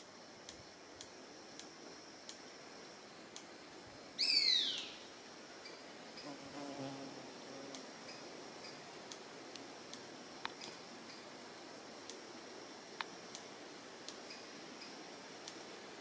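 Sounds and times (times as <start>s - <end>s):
high insect drone: 0.0s - 16.0s
whistled bird call sliding down: 4.2s - 4.9s.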